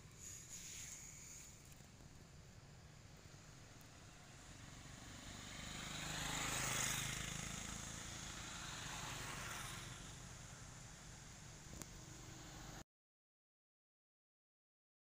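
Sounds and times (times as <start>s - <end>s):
motor vehicle passing: 3.4s - 12.8s.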